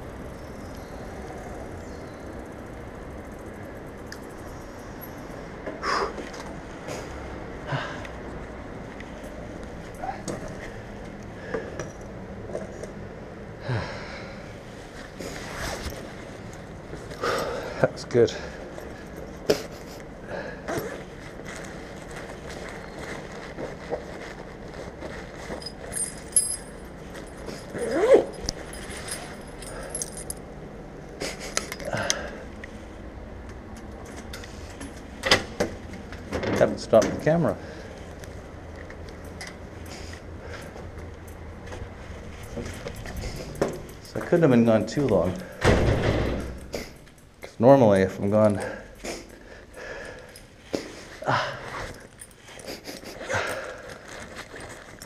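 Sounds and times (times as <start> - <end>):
man breathing heavily: 6.8 - 8.3, 13.6 - 14.6, 17.1 - 19.3, 20.2 - 20.7, 28.8 - 30.4, 31.2 - 32.6, 43.0 - 44.1, 48.6 - 54.3
keys jangling: 25.4 - 30.5, 42.2 - 47.4, 51.8 - 55.0.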